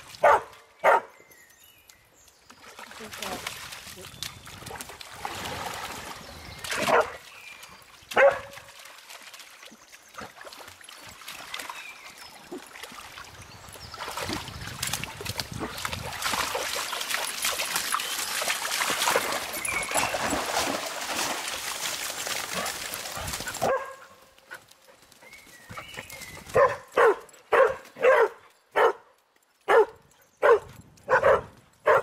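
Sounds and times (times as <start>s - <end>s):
dog barking: 0.2s - 1.1s, 6.9s - 7.2s, 8.2s - 8.5s, 23.6s - 24.2s, 26.6s - 29.0s, 29.7s - 32.0s
dogs splashing in water: 2.4s - 28.3s.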